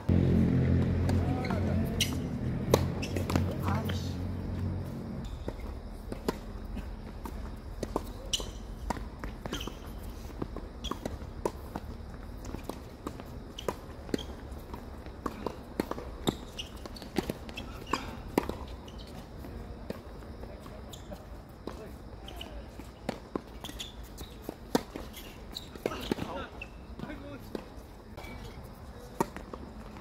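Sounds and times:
tennis balls struck by racquets: 0.1 - 20.7.

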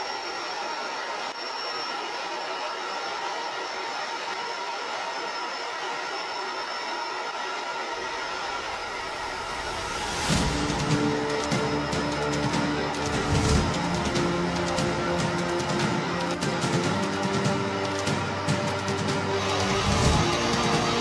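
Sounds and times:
loud whoosh: 8.5 - 15.5
music: 9.4 - 21.0.

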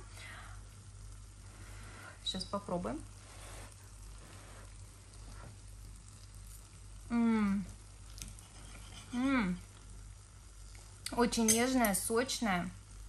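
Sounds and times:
steady faint hiss: 0.0 - 13.0
woman humming mmm while chewing: 7.1 - 7.8.

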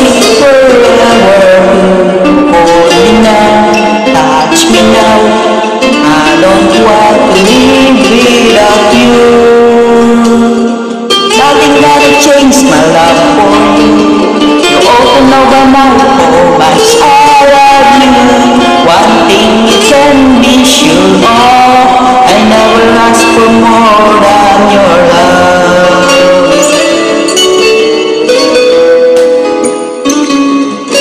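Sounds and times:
instrumental backing track: 0.0 - 31.0
person singing: 0.0 - 31.0.

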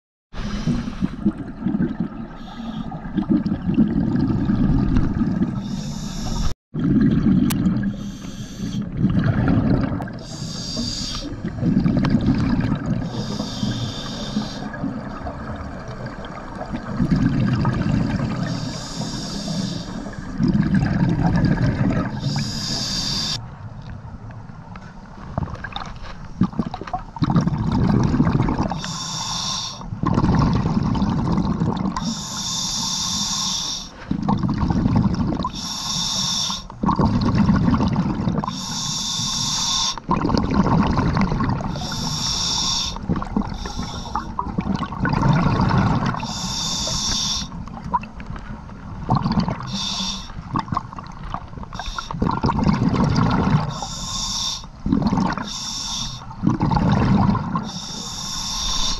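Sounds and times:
hissing regulator inhale: 0.4 - 1.2, 2.4 - 3.0, 5.6 - 6.6, 7.9 - 8.9, 10.2 - 11.4, 13.0 - 14.8, 18.4 - 20.2, 22.2 - 23.4, 28.7 - 29.9, 32.0 - 34.1, 35.5 - 36.7, 38.5 - 40.1, 41.7 - 44.4, 46.2 - 47.6, 49.6 - 50.4, 51.7 - 52.2, 53.7 - 54.8, 55.4 - 56.4, 57.6 - 58.9
exhaled bubbles rushing: 0.4 - 22.9, 25.3 - 28.9, 29.9 - 32.2, 34.1 - 35.6, 36.8 - 38.6, 40.0 - 42.2, 43.0 - 54.0, 54.7 - 55.6, 56.2 - 58.9.

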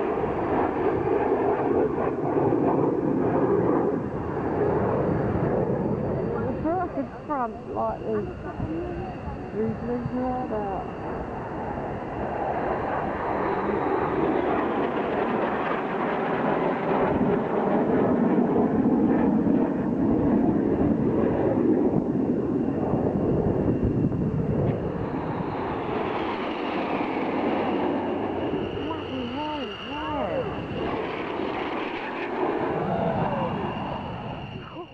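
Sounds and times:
jet engines roaring overhead: 0.0 - 34.9
jet whine falling in pitch: 22.3 - 34.9.

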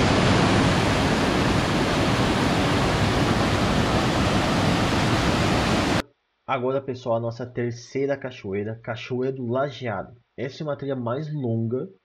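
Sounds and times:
waterfall rushing: 0.0 - 6.0.

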